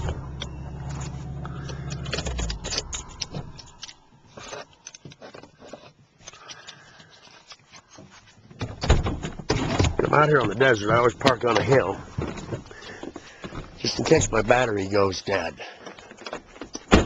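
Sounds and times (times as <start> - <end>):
vehicle engine running: 0.0 - 3.8
vehicle rattling: 0.0 - 4.0.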